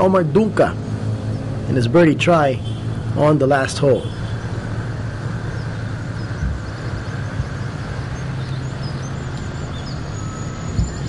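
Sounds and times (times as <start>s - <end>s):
low outdoor rumble with hum: 0.0s - 11.0s
faint bird chirps: 5.4s - 11.0s.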